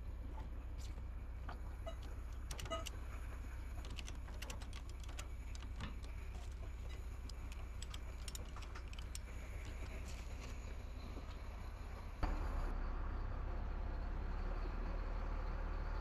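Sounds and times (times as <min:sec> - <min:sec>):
truck engine rumbling: 0:00.0 - 0:16.0
light clicks and rattles: 0:00.3 - 0:11.5.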